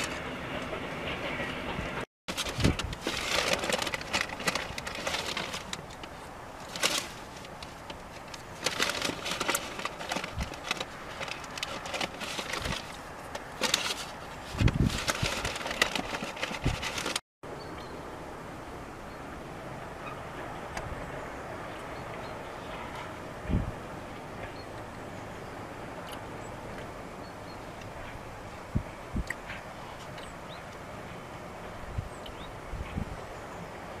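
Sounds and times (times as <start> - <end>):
steady train rumble: 0.0 - 17.2, 18.0 - 34.0
train wheels clattering on rails: 0.0 - 17.2.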